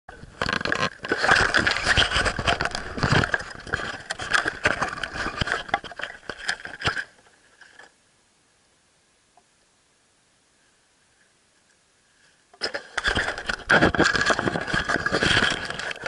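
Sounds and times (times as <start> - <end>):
camera handling scraping and rustling: 0.2 - 7.9, 12.6 - 16.0.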